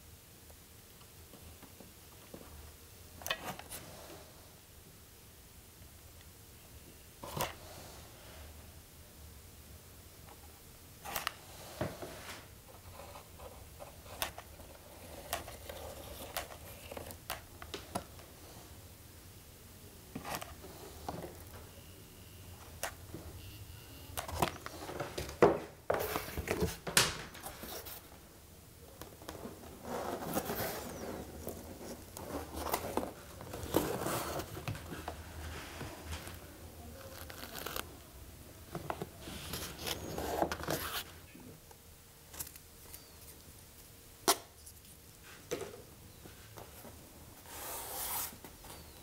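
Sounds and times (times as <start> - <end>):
cardboard rustling and crackling: 29.1 - 37.9.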